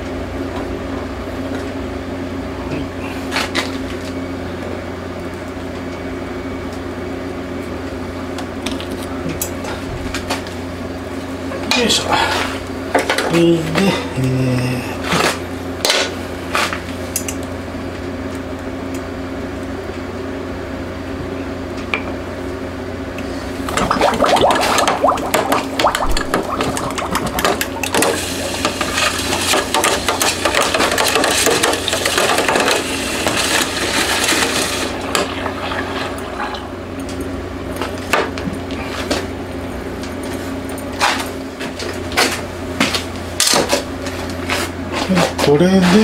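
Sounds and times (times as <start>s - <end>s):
steady hum: 22.3s - 40.0s
hot steel sizzling in liquid: 23.7s - 36.7s.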